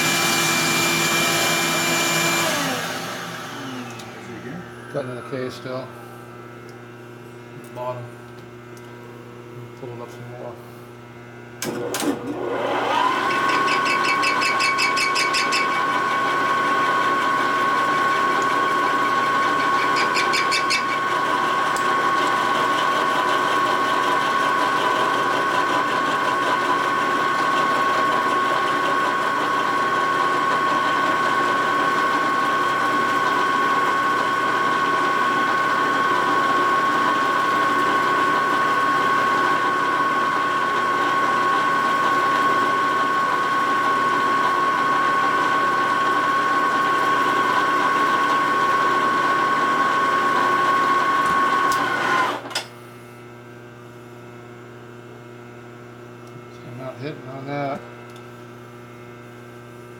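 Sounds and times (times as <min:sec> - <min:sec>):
milling machine whining: 0:00.0 - 0:06.8, 0:11.6 - 0:52.6.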